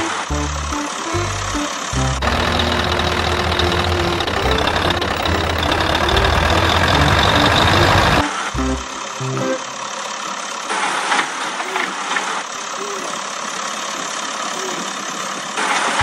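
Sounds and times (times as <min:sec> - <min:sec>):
toy truck driving through sand: 0:00.0 - 0:08.6, 0:10.0 - 0:16.0
truck engine running: 0:00.0 - 0:11.4.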